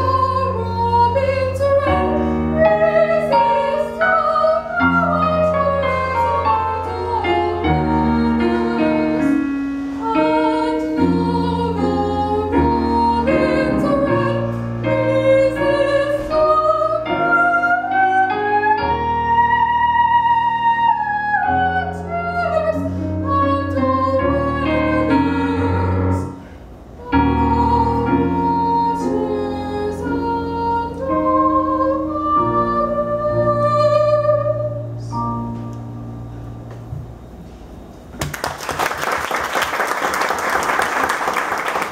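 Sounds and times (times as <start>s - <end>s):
soprano singing with vibrato: 0.0s - 26.3s, 27.0s - 35.2s
piano accompaniment: 0.0s - 38.8s
applause: 38.2s - 41.9s.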